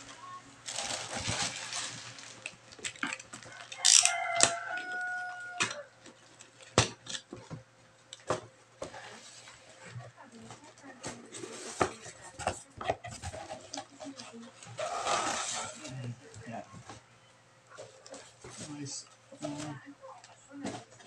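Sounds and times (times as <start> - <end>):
packing tape peeling: 0.7 - 4.6.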